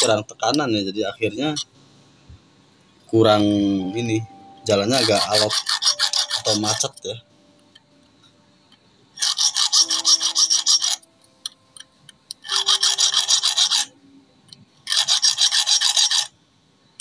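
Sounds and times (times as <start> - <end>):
hand file rasping on steel: 5.0 - 6.9, 9.2 - 11.0, 12.4 - 13.9, 14.9 - 16.3.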